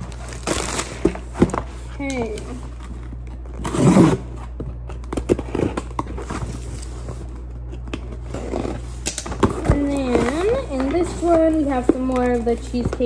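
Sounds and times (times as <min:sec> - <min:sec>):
box cutter slicing packing tape: 0:03.6 - 0:04.3.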